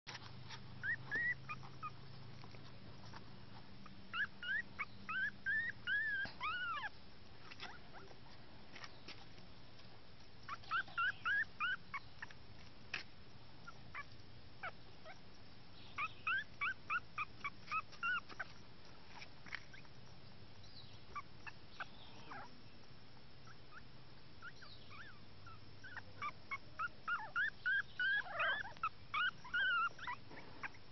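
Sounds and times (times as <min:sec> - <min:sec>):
puppy squeaking and whimpering: 0:00.5 - 0:03.2, 0:03.8 - 0:08.2, 0:10.4 - 0:12.4, 0:13.6 - 0:15.2, 0:15.9 - 0:18.6, 0:21.1 - 0:22.5, 0:23.5 - 0:30.8.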